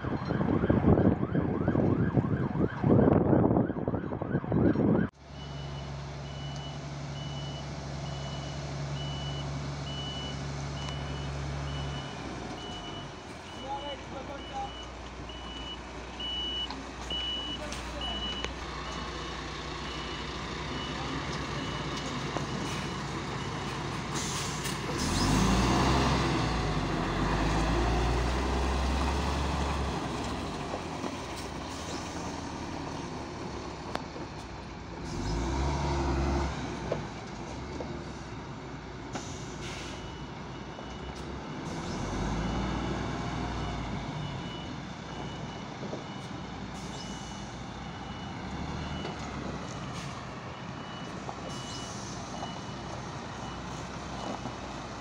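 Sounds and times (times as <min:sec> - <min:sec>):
reversing beeper: 0:05.3 - 0:18.6, 0:19.8 - 0:28.2, 0:39.3 - 0:54.4
truck diesel engine running: 0:06.0 - 0:35.6.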